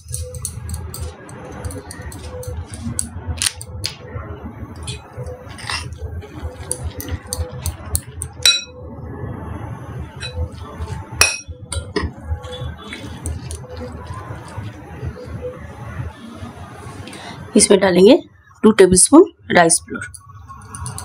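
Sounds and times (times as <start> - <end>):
kneading food by hand: 12.4 - 15.4.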